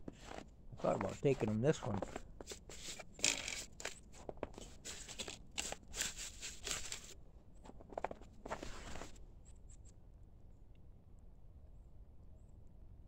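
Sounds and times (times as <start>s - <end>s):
footsteps crunching through snow: 0.1s - 9.2s.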